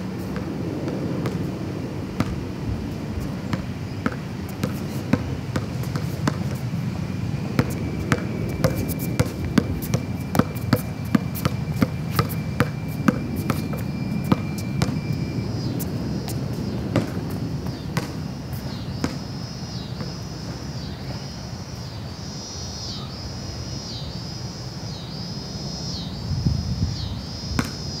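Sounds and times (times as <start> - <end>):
basketball bouncing on concrete: 0.0 - 1.5, 2.2 - 21.3, 27.6 - 28.0.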